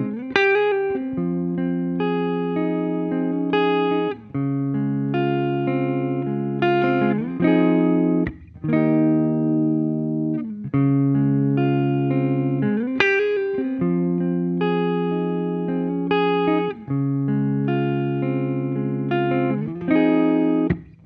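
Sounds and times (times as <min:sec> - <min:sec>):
overdriven electric guitar chords: 0:00.0 - 0:21.0.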